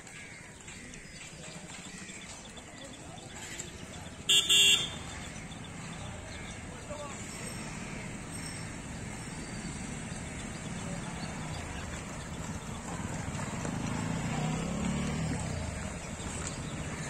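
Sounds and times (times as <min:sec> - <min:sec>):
van engine pulling away: 0:07.6 - 0:17.0
motorcycle engine pulling away: 0:08.6 - 0:17.0.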